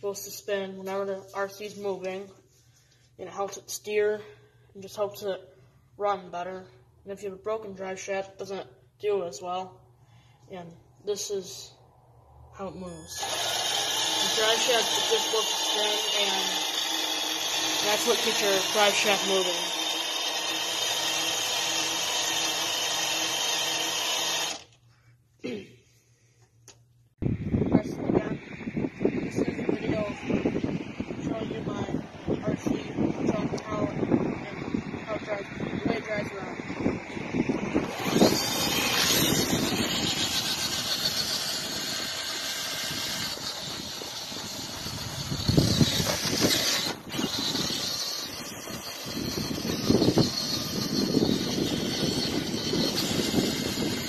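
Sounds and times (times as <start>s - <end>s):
toy truck electric motor whirring: 13.0s - 24.9s, 29.3s - 54.0s.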